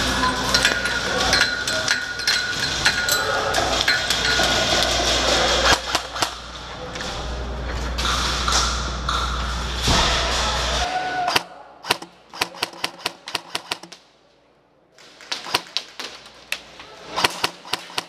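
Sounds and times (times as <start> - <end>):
airsoft gunfire: 11.3 - 13.9, 17.1 - 18.0.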